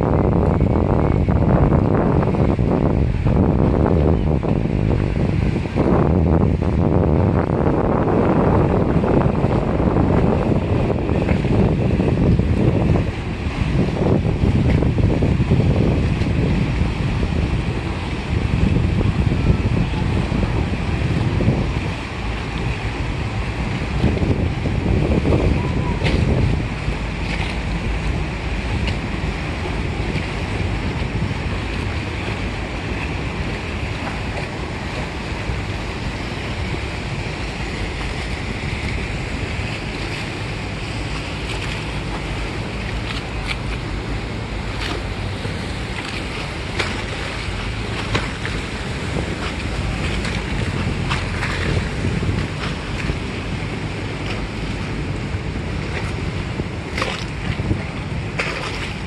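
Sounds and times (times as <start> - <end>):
motorboat engine running: 0.0 - 59.0
water washing along hull: 0.0 - 59.0
wind buffeting microphone: 0.0 - 59.0.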